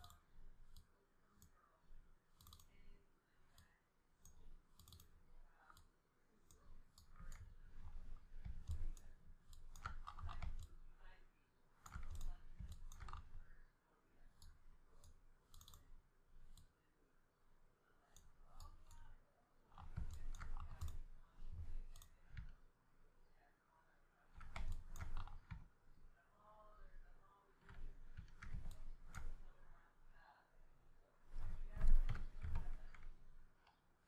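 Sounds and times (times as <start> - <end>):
mouse and keyboard clicking: 0.0 - 1.6, 2.3 - 2.9, 3.5 - 5.9, 6.5 - 10.8, 11.8 - 13.6, 14.4 - 16.7, 18.2 - 22.6, 24.4 - 25.7, 27.7 - 29.6, 31.3 - 33.4.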